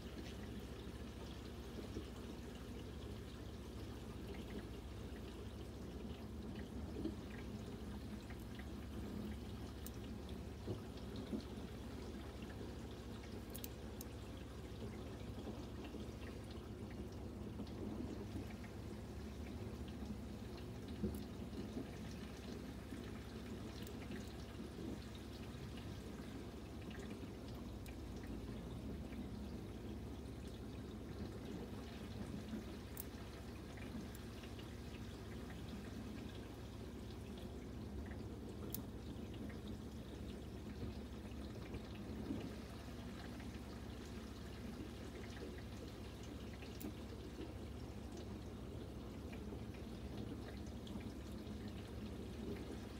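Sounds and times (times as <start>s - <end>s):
low steady hum: 0.0s - 52.9s
water trickling and dripping: 0.0s - 52.9s
faint clicks: 13.2s - 17.0s.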